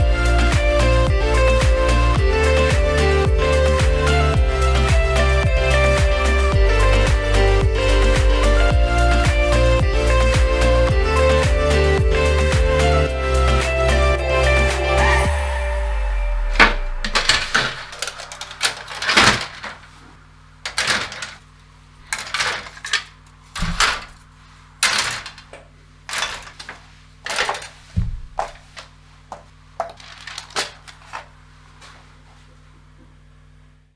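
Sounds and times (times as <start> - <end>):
plastic parts clicking and clattering: 17.1 - 19.9, 20.6 - 21.4, 22.0 - 24.2, 24.8 - 27.8, 29.8 - 31.3.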